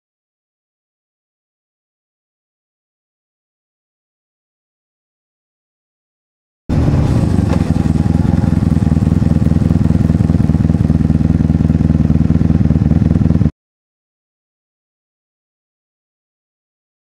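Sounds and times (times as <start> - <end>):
motorcycle engine running: 6.7 - 13.5.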